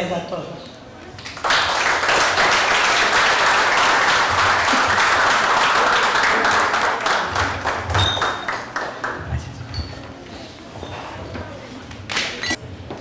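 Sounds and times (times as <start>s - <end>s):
people applauding: 1.2s - 9.3s.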